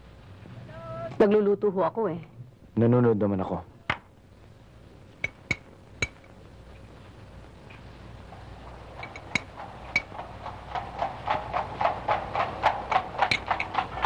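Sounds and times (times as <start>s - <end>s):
faint hiss: 0.0s - 14.0s.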